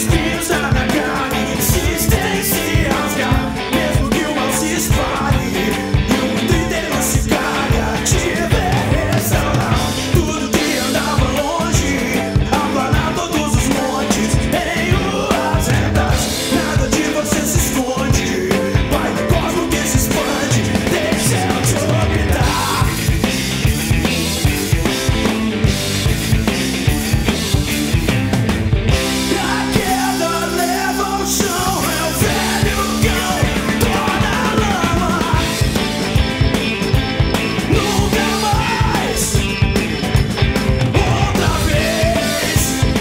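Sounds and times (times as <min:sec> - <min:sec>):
person singing: 0:00.0 - 0:23.2, 0:28.9 - 0:35.9, 0:37.5 - 0:39.8, 0:40.6 - 0:43.0
drums: 0:00.0 - 0:43.0
piano: 0:00.0 - 0:43.0
rock song with vocals: 0:00.0 - 0:43.0.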